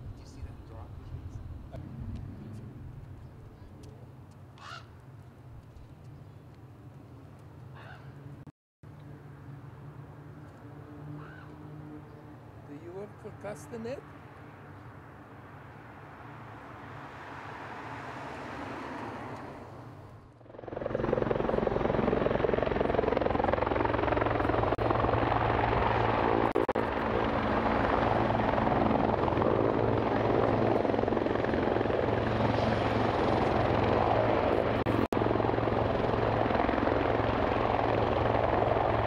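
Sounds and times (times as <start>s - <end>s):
helicopter rotor thrumming: 20.1s - 39.0s.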